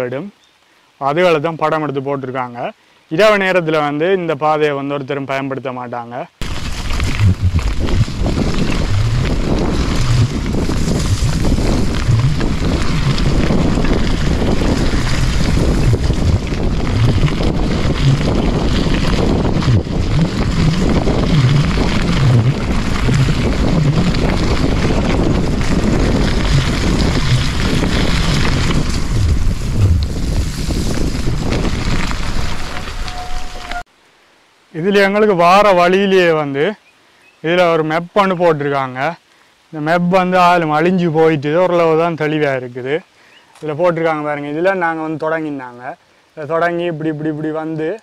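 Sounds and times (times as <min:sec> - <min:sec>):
bike tyres rumbling over dirt: 0:06.4 - 0:33.8
wind buffeting microphone: 0:06.4 - 0:33.8.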